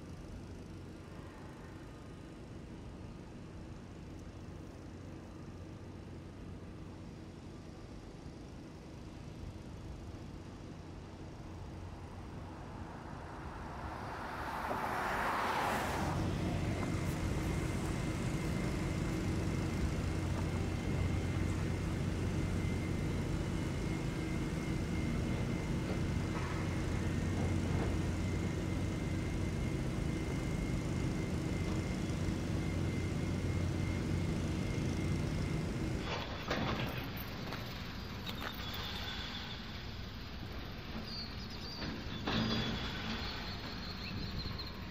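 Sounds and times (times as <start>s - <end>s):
faint high whine: 0.0s - 44.9s
low engine drone: 9.6s - 41.0s
rush of noise: 11.6s - 18.3s.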